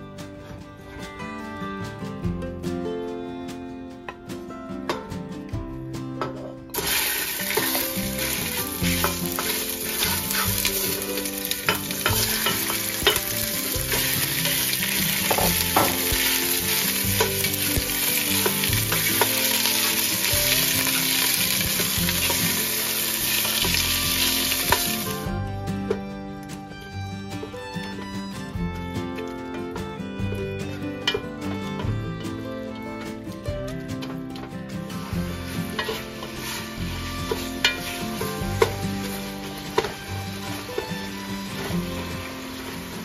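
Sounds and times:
sausages sizzling in hot oil: 0:06.7 - 0:25.3, 0:35.0 - 0:43.0.

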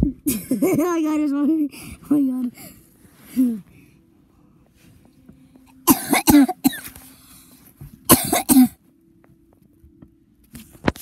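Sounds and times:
person coughing: 0:05.8 - 0:07.0, 0:08.1 - 0:08.8.

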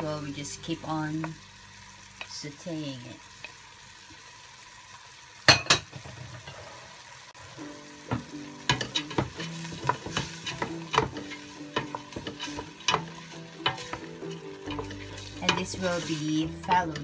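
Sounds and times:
soft background music: 0:00.0 - 0:03.4, 0:07.4 - 0:17.0
light sizzle: 0:00.0 - 0:17.0
wooden spoon stirring in pot: 0:08.0 - 0:17.0.

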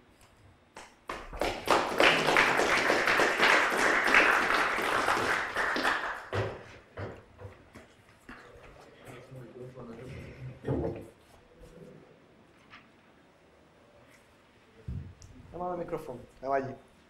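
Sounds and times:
audience applauding: 0:01.1 - 0:06.7.

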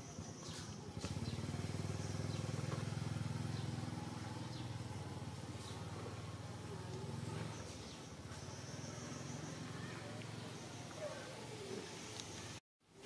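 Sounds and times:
engine running with low pulsing: 0:00.0 - 0:11.0.

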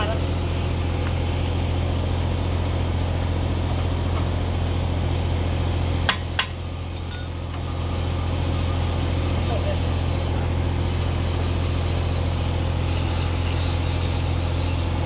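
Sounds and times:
engine idling: 0:00.0 - 0:15.0
sharp metal clinks: 0:07.1 - 0:07.5.

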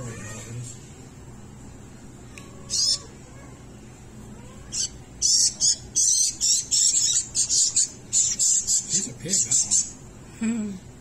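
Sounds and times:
fledgling birds begging calls: 0:02.7 - 0:03.2, 0:04.7 - 0:10.0.

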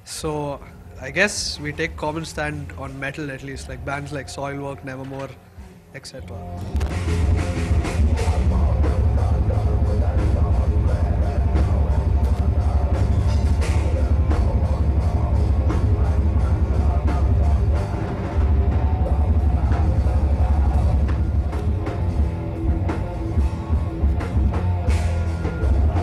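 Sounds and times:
heavy metal band playing live: 0:06.7 - 0:26.0
pounding drum kit: 0:06.7 - 0:26.0.

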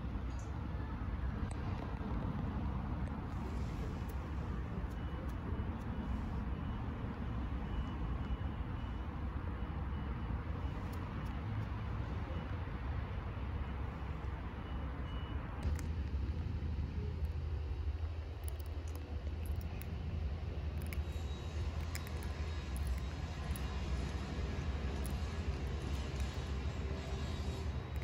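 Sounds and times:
motor vehicle rumbling: 0:00.0 - 0:28.0
reversing alarm beeps: 0:03.5 - 0:12.6, 0:13.6 - 0:15.5.

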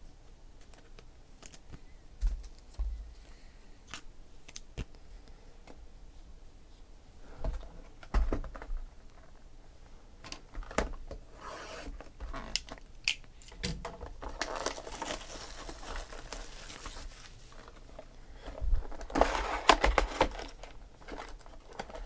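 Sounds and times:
plastic wrapping crinkling and tearing: 0:14.2 - 0:18.1, 0:18.8 - 0:22.0.

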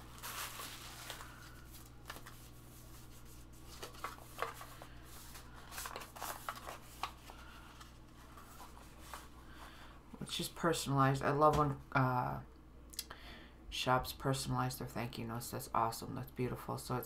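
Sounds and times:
paper envelope rustling: 0:00.0 - 0:09.4.

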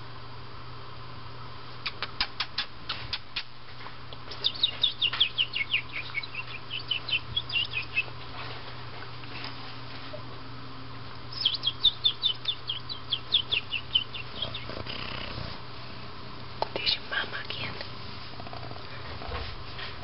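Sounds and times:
bird chirping: 0:04.3 - 0:08.2, 0:11.3 - 0:15.3.

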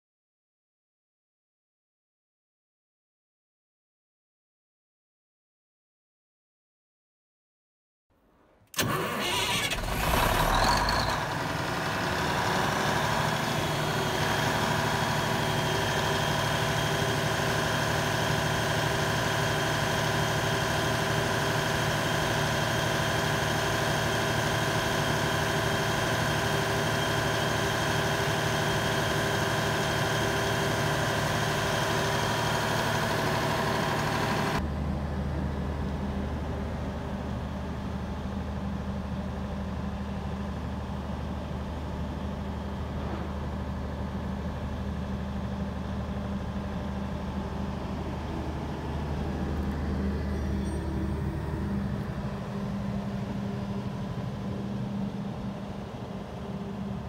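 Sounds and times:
diesel generator running: 0:08.8 - 0:57.0.

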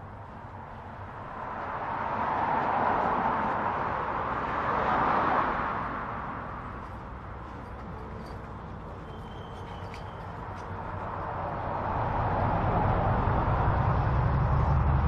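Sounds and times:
freight locomotive passing: 0:06.5 - 0:15.0.

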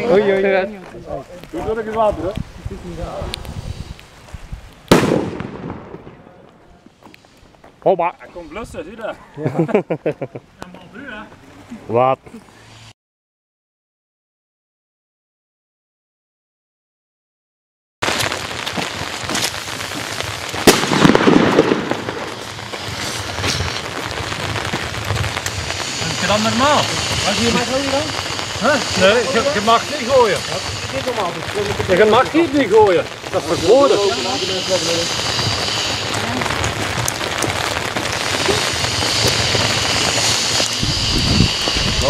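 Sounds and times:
steady hissing noise: 0:00.0 - 0:13.0, 0:18.1 - 0:42.0
light firework pops: 0:04.7 - 0:07.4, 0:18.0 - 0:33.6, 0:35.1 - 0:40.8
firework bang: 0:04.9 - 0:06.6, 0:18.0 - 0:42.0.

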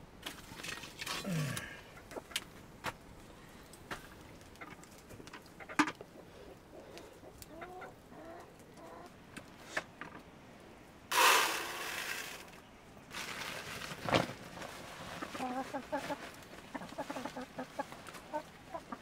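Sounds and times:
hen clucking: 0:05.5 - 0:09.2, 0:15.2 - 0:19.0
grain poured into plastic bucket: 0:11.1 - 0:14.2.

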